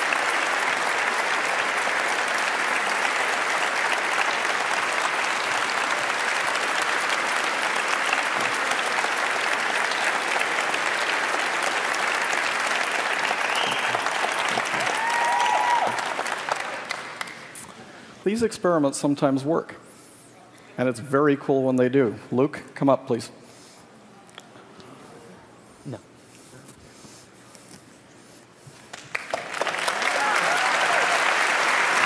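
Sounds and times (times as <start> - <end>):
audience applauding: 0.0 - 17.6, 28.9 - 32.0.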